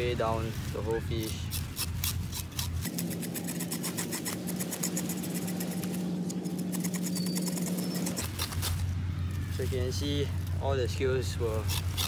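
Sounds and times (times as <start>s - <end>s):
knife scraping fish scales: 1.2s - 8.8s, 11.6s - 12.0s.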